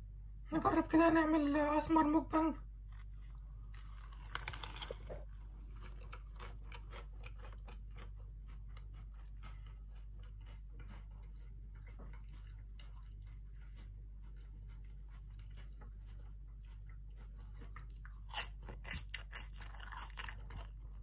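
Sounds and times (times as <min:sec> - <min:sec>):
crunchy bite: 0:02.9 - 0:08.1, 0:18.2 - 0:20.8
chewing clicks: 0:03.0 - 0:20.8.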